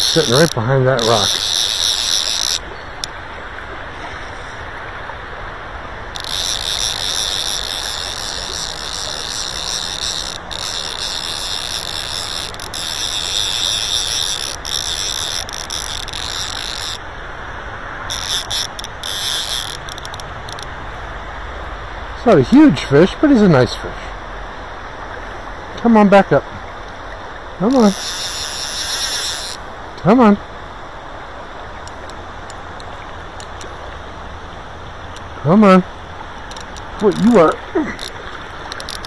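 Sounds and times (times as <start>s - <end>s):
fishing reel drag ratcheting: 0.0s - 3.1s, 6.1s - 17.0s, 18.1s - 20.7s, 27.6s - 29.6s, 31.8s - 33.8s, 36.4s - 39.0s
river current rushing: 0.0s - 39.0s.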